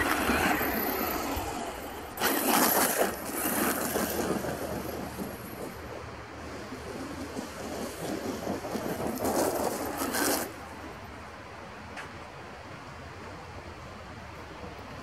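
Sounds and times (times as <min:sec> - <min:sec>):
tyres churning sand: 0:00.0 - 0:11.2.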